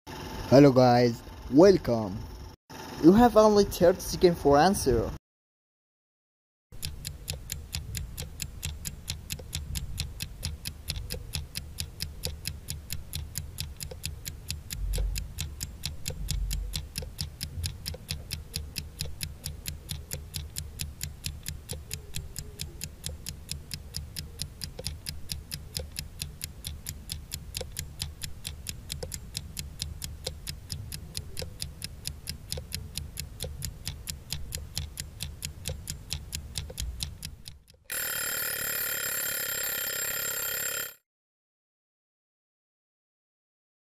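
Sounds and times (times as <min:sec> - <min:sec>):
clock ticking rapidly: 0:06.7 - 0:41.0.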